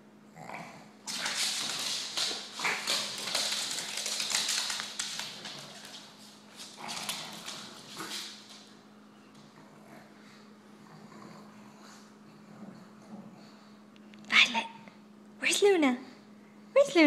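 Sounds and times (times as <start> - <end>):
dog claws scrabbling on wood floor: 1.1 - 9.4.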